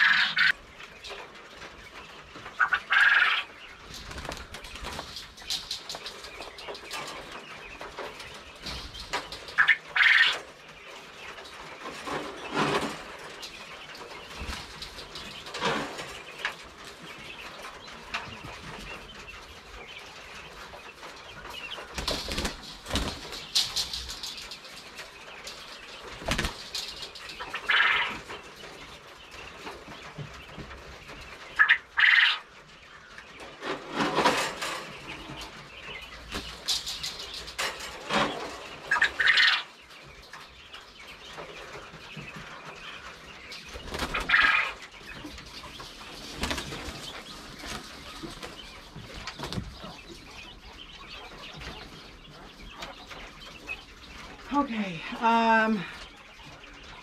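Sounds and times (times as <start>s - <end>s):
quail wings flapping: 2.0s - 17.2s, 20.6s - 28.8s, 43.0s - 49.9s.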